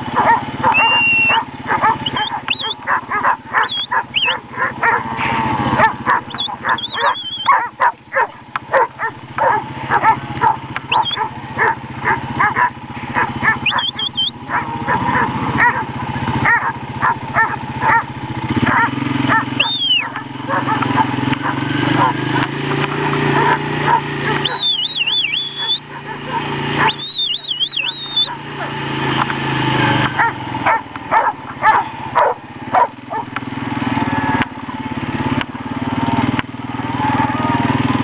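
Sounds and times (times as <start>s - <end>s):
dog barking rapidly: 0.0s - 22.3s, 23.2s - 28.9s, 30.2s - 33.3s
high whistle-like notes: 0.7s - 2.9s, 3.6s - 4.4s, 6.3s - 7.5s, 10.9s - 11.3s, 13.6s - 14.4s, 19.6s - 20.2s, 24.4s - 25.9s, 26.8s - 28.4s.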